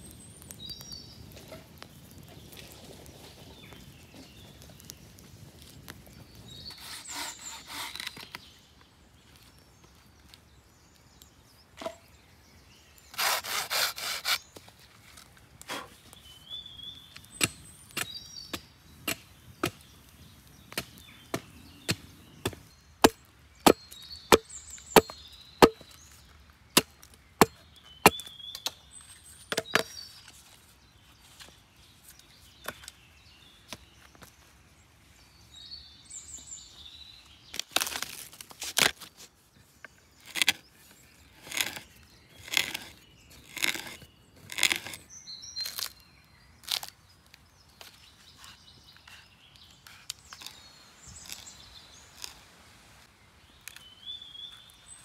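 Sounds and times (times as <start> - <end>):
saw rasping through wood: 6.7 - 8.1, 13.1 - 14.4
blade chopping into wood: 20.7 - 25.8.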